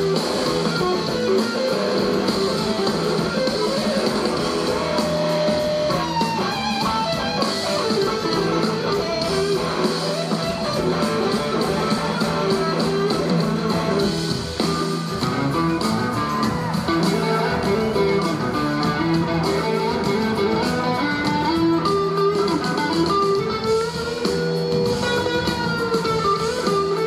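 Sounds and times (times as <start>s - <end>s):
blues-rock band playing: 0.0s - 27.0s
electric guitar lead: 0.0s - 27.0s.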